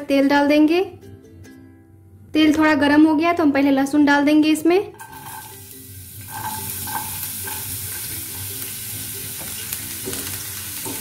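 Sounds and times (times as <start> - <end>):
garlic sizzling in hot oil: 5.0 - 11.0.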